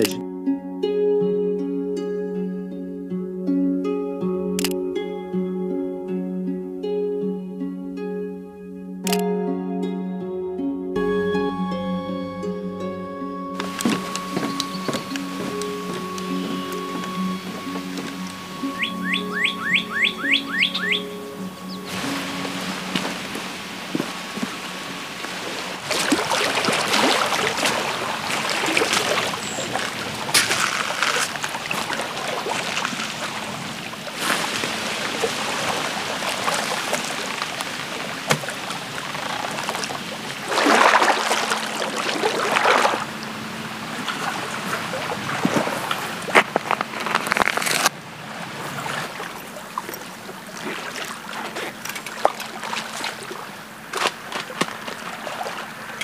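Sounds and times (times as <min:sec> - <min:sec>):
waves lapping on rocks and sand: 0:00.0 - 0:00.2, 0:13.6 - 0:56.0.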